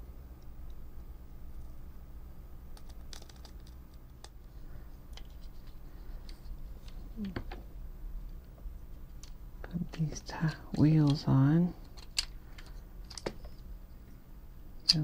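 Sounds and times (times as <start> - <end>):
steady low hum: 0.0 - 15.0
plastic parts clicking and tapping: 2.8 - 4.4, 11.8 - 13.5.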